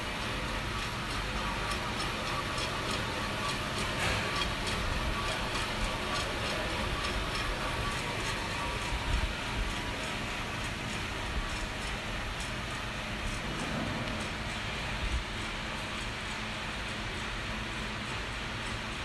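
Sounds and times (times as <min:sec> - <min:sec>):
light ticks of tumbling beans: 0:00.0 - 0:13.4
coffee roaster drum rushing: 0:00.0 - 0:19.0.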